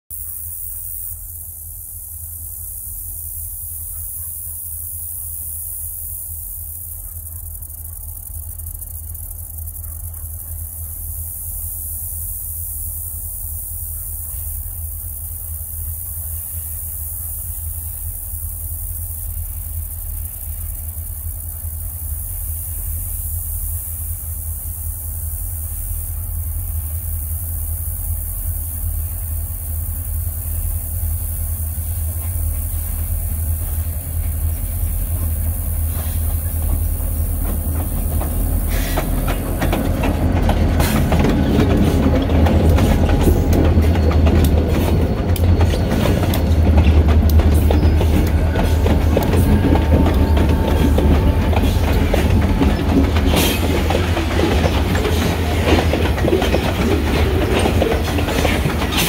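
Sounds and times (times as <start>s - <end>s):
diesel locomotive engine rumble: 0.0s - 59.0s
steady high hiss: 0.1s - 44.0s.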